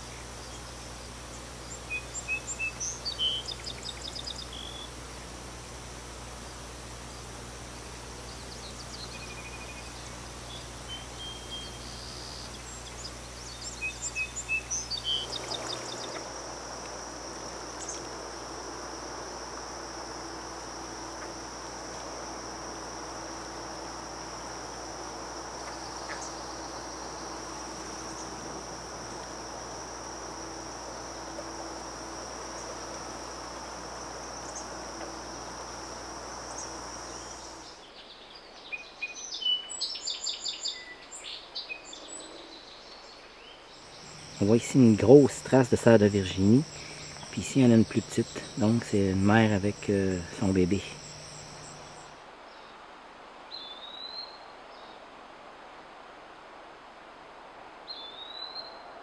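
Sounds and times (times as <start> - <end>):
insects trilling: 0.0 - 38.1, 39.0 - 52.2
insect chirps: 0.0 - 52.8, 53.5 - 54.9, 57.9 - 59.0.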